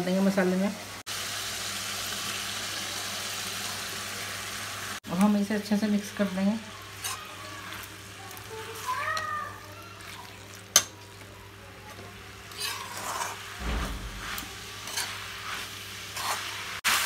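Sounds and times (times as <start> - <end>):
faint frying sizzle: 0.0 - 17.0
metal spatula scraping a pan: 6.2 - 7.9, 12.5 - 17.0.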